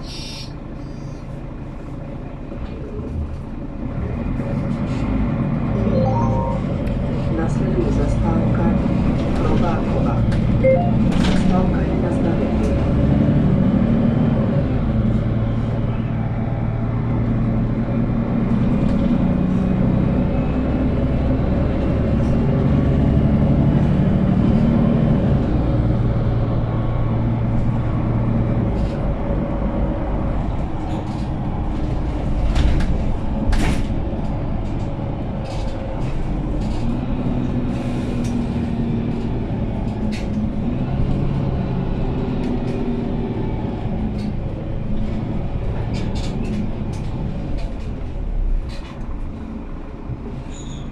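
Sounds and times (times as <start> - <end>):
bus diesel engine drone: 0.0 - 50.9
road rumble: 0.0 - 50.9
interior rattles and clicks: 43.8 - 49.5.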